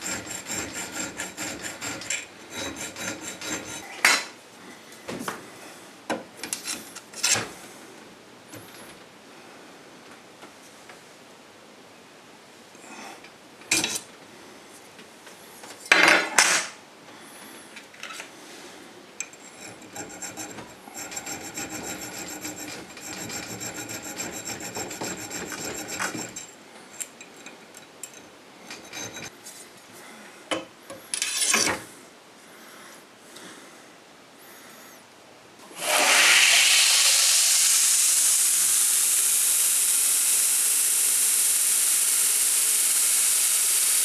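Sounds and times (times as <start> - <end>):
metal file rasping on steel: 0.0 - 4.1, 19.4 - 26.5, 28.8 - 29.3
metal-on-metal scrapes: 0.0 - 4.3, 19.4 - 26.6, 28.7 - 29.3, 31.1 - 31.8.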